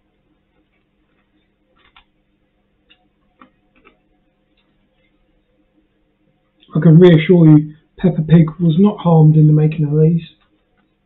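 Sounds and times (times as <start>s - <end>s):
faint crackling clicks: 0.5s - 2.2s, 2.8s - 5.3s, 10.3s - 11.0s.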